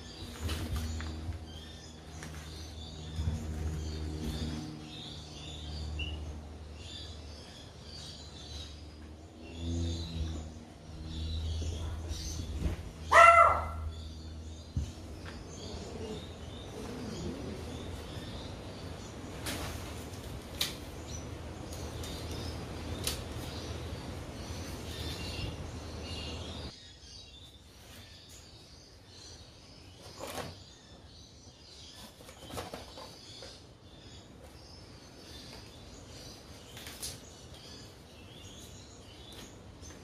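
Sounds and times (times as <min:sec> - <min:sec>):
birds chirping: 0:00.0 - 0:40.0.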